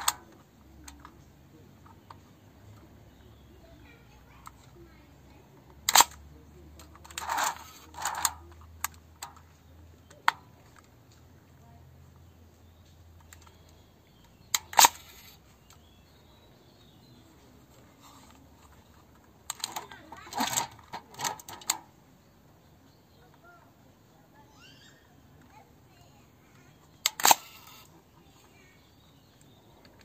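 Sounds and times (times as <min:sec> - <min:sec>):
camera metal clicks: 0:05.8 - 0:06.2, 0:14.4 - 0:15.8, 0:27.0 - 0:27.9.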